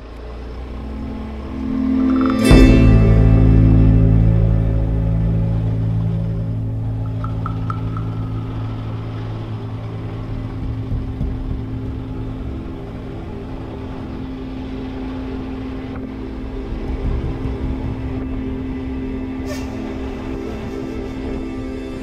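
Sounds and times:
motorcycle engine running: 0.0s - 20.6s.

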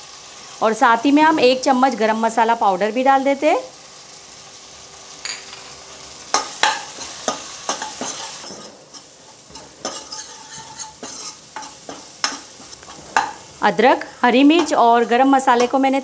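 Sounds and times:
food sizzling in oil: 0.0s - 16.0s
spoon scraping and knocking pan: 5.2s - 13.6s, 14.4s - 15.8s.

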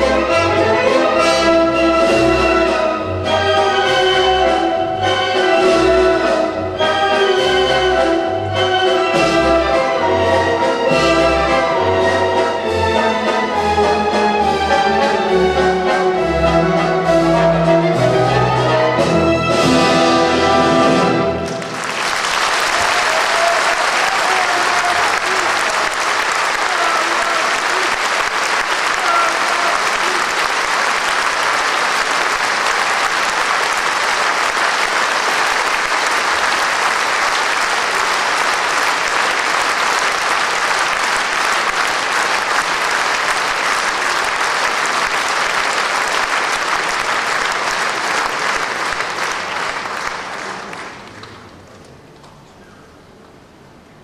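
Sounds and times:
audience applauding: 21.0s - 51.9s.

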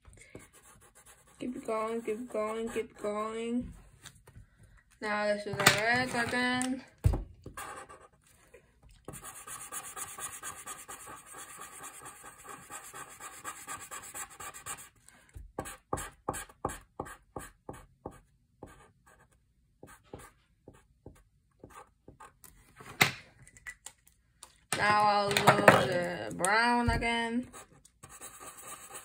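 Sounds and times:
marker scribbling on paper: 0.4s - 3.3s, 9.1s - 15.0s, 27.4s - 29.0s.

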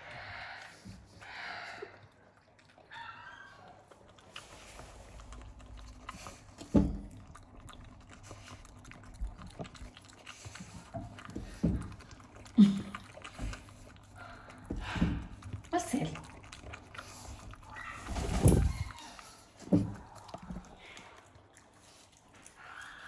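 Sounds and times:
raccoon chewing and smacking: 0.0s - 23.0s.

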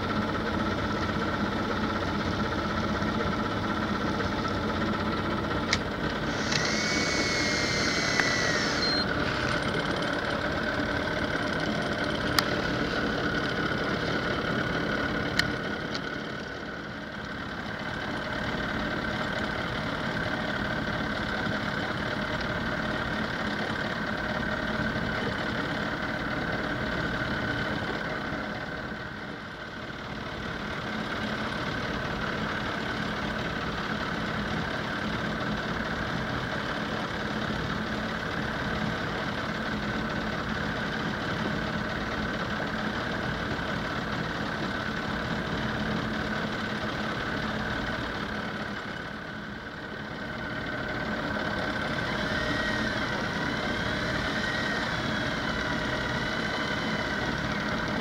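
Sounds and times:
motor humming and whining: 5.5s - 13.7s, 50.3s - 58.0s
sharp clicks: 5.7s - 9.6s
brief higher tone: 6.3s - 9.2s.

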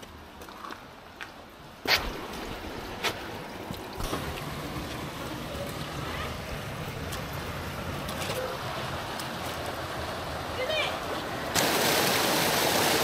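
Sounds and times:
footsteps on wet stone: 0.0s - 5.9s
stream rushing through rock gorge: 0.9s - 13.0s.

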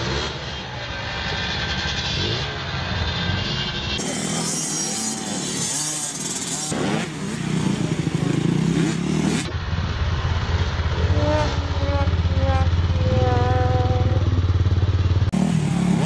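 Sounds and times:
motocross bikes revving: 0.0s - 16.0s
deep steady engine note: 9.5s - 16.0s.

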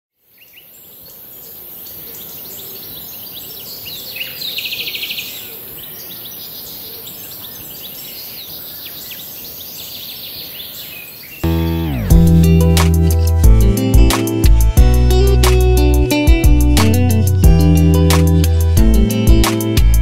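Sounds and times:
birds singing and chirping: 0.2s - 13.5s
steady high hiss: 11.4s - 19.9s.

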